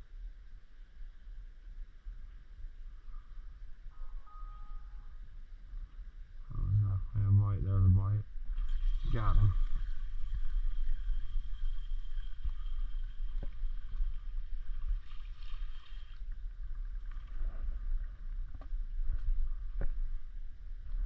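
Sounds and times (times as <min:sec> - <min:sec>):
wind rumbling on microphone: 0:00.0 - 0:21.0
rippling water: 0:08.3 - 0:21.0.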